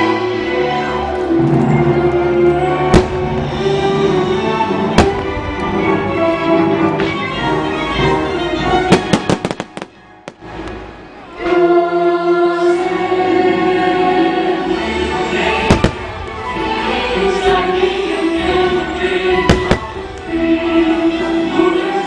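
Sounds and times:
music with choir: 0:00.0 - 0:22.0
firework bang: 0:02.9 - 0:03.6, 0:04.9 - 0:05.5, 0:08.9 - 0:10.6, 0:15.7 - 0:16.4, 0:19.5 - 0:20.2
firework cracks: 0:02.9 - 0:03.6, 0:04.9 - 0:05.7, 0:08.9 - 0:10.9, 0:15.7 - 0:16.4, 0:19.5 - 0:20.3.

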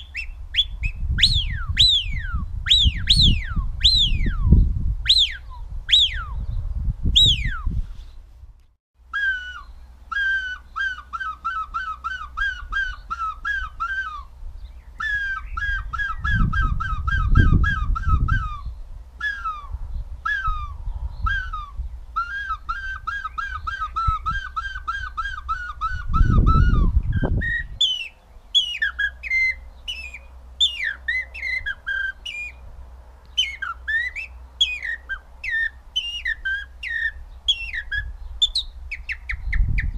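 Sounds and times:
finger-whistled bird imitations: 0:00.0 - 0:06.5, 0:07.2 - 0:07.8, 0:09.1 - 0:14.3, 0:15.0 - 0:32.6, 0:33.3 - 0:39.9
low rumble on microphone: 0:00.4 - 0:08.6, 0:14.3 - 0:22.2, 0:26.0 - 0:27.8.

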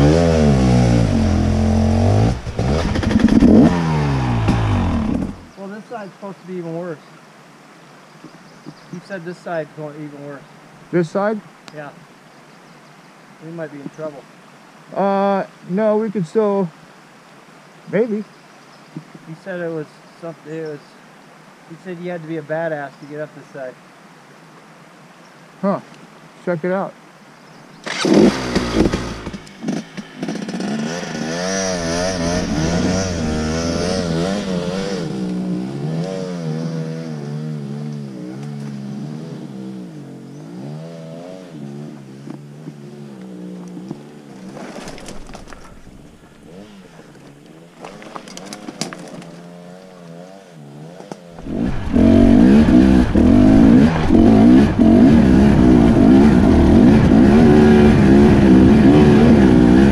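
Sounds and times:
close dirt bike engine running hard: 0:00.0 - 0:05.5, 0:27.9 - 0:35.9, 0:51.4 - 0:59.9
dirt bike engine revving: 0:00.0 - 0:05.5, 0:27.8 - 0:44.6, 0:46.3 - 0:47.0, 0:47.8 - 0:59.9.

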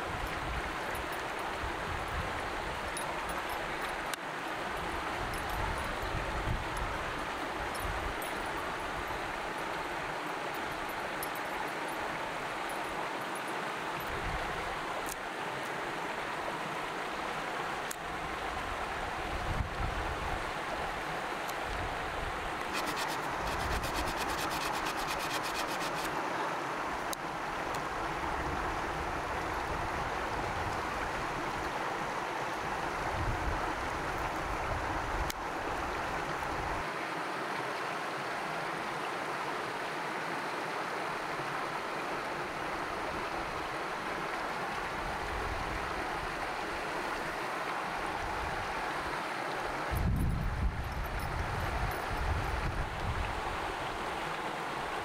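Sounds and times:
creek water rushing: 0:00.0 - 0:55.0
knife scraping bark off stick: 0:22.7 - 0:26.1.

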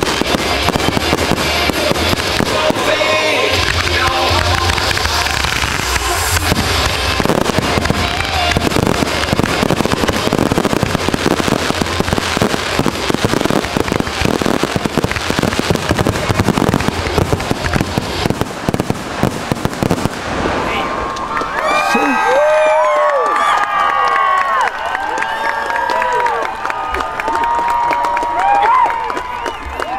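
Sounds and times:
fireworks shells bursting: 0:00.0 - 0:20.7
music soundtrack: 0:00.0 - 0:20.7
fireworks crackling: 0:00.0 - 0:24.9.

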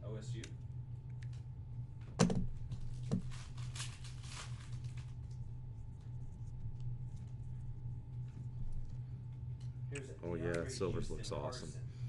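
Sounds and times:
steady low hum: 0:00.0 - 0:12.0
cards and wrappers rustling: 0:02.8 - 0:05.4.

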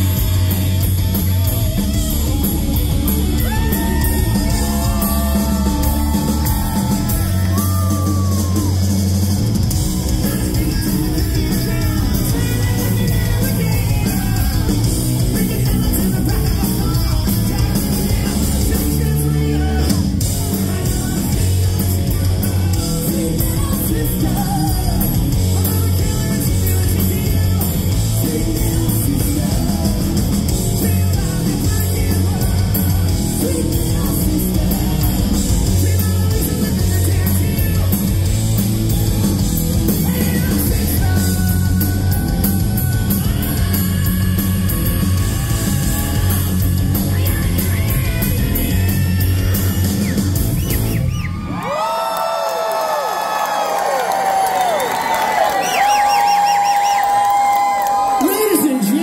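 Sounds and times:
heavy rock band playing: 0:00.0 - 0:51.9, 0:54.3 - 0:59.0
man and woman singing and screaming: 0:03.0 - 0:09.0, 0:09.7 - 0:38.0, 0:39.8 - 0:52.0.

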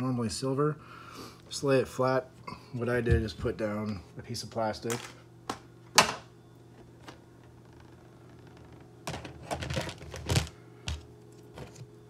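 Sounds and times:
plastic clattering and rubbing: 0:07.0 - 0:11.9.

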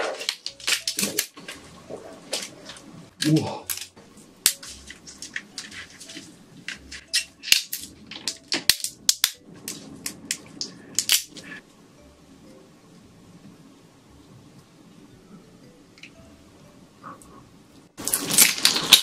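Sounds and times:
prawn shell cracking: 0:00.0 - 0:01.6, 0:02.3 - 0:11.6, 0:18.0 - 0:19.0.

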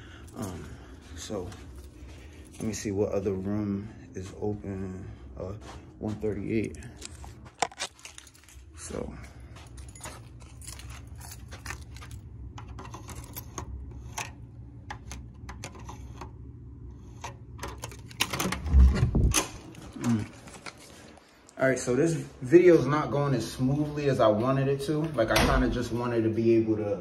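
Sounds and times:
steady low hum: 0:00.0 - 0:27.0
keys jangling: 0:07.0 - 0:14.3
door thump: 0:25.3 - 0:25.9.

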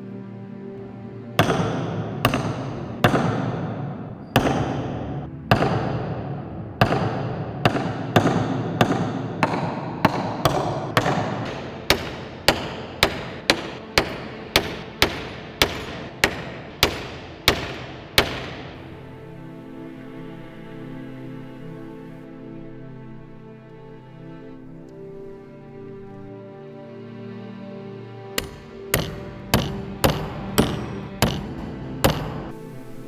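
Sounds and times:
hammer striking iron nail: 0:01.4 - 0:03.6, 0:04.4 - 0:06.1, 0:06.8 - 0:18.8, 0:28.4 - 0:32.5.

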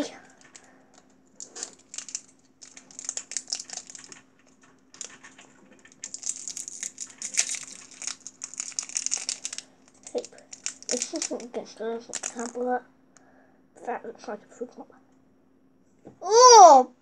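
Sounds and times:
candy wrapper crinkling: 0:00.2 - 0:12.7.

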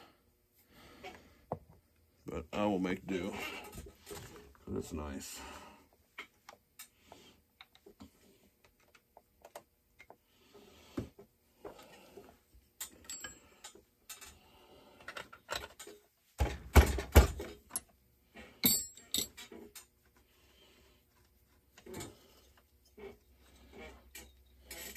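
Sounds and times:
hand tools clicking and clinking: 0:12.8 - 0:14.3, 0:18.6 - 0:19.6
clatter of knocks and thumps: 0:15.5 - 0:17.7.

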